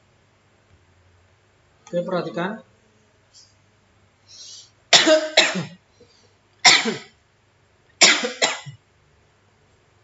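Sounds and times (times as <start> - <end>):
man coughing: 4.9 - 5.8, 6.6 - 7.1, 8.0 - 8.8.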